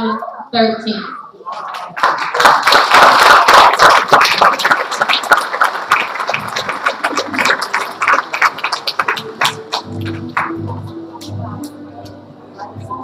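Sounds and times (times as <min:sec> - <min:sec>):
audience applauding: 0:01.6 - 0:11.8.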